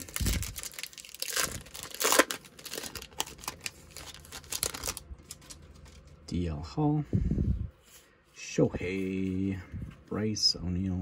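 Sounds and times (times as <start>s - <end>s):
wrapper ripping: 0.0s - 6.0s
wrapper crinkling: 0.0s - 6.2s.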